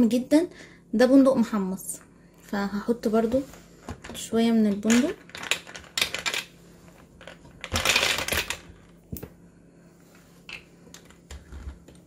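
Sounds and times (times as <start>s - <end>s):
nuts rattling into blender jug: 4.7s - 6.5s, 7.2s - 8.9s.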